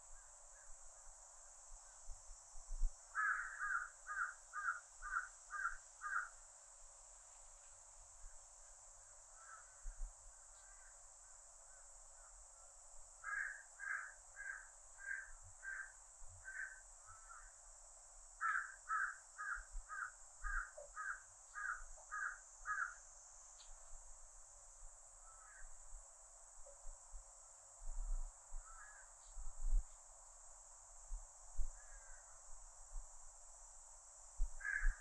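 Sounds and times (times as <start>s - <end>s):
cicadas droning: 0.0s - 35.0s
crow cawing: 3.2s - 6.4s, 9.4s - 9.8s, 13.2s - 17.5s, 18.4s - 23.0s, 25.3s - 25.7s, 28.6s - 29.1s, 34.6s - 35.0s.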